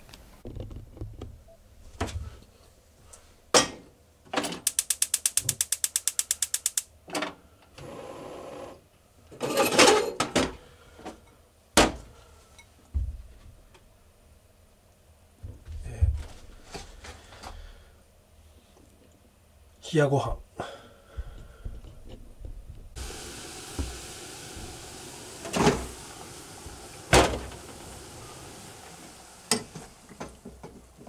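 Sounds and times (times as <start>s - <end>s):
gas stove igniter clicking: 4.6s - 6.9s.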